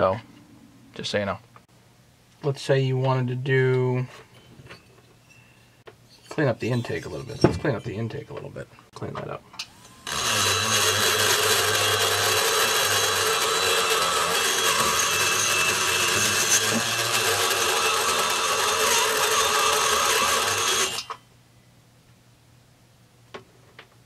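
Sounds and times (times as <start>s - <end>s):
micromotor whine and grinding: 9.7s - 21.2s.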